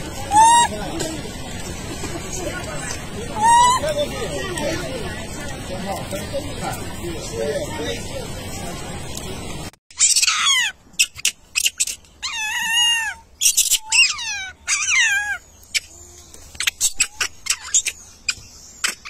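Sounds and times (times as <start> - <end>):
monkey squealing calls: 0.1 - 0.9, 3.2 - 4.2, 9.9 - 19.0
monkey chirps: 0.2 - 0.8, 3.3 - 4.0, 9.9 - 19.0.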